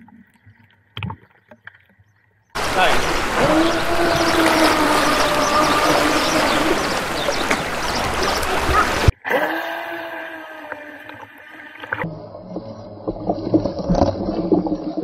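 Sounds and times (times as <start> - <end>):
electric motor whining: 2.6 - 8.7
wind noise: 2.6 - 9.1
water rushing: 2.6 - 15.0.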